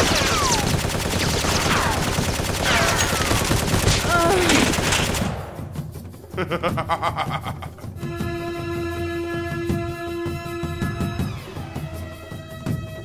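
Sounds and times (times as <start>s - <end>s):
automatic gunfire: 0.0s - 5.6s.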